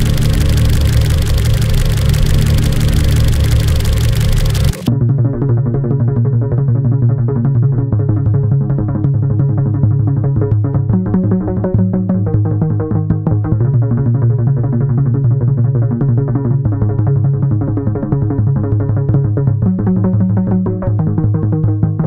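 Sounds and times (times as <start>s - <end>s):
low synth bass line: 0.0s - 4.9s
quick repeating synth notes: 0.0s - 4.9s.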